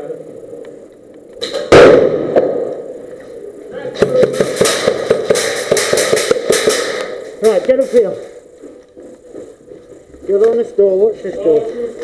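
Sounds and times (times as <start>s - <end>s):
airsoft shots and bb hits: 1.4s - 2.7s, 4.0s - 7.4s.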